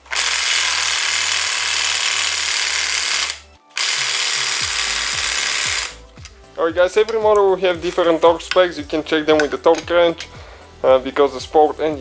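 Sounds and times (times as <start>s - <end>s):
impact wrench hammering: 0.0s - 6.4s, 7.0s - 10.4s.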